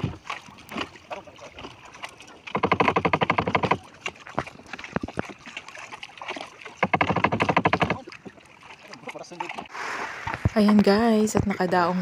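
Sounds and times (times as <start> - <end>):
paddle knocking on wooden hull: 1.6 - 9.7.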